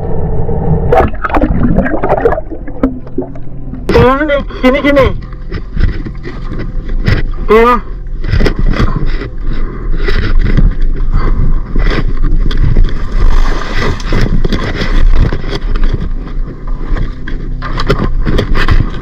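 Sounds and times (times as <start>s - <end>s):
boat low rumble: 0.0s - 19.0s.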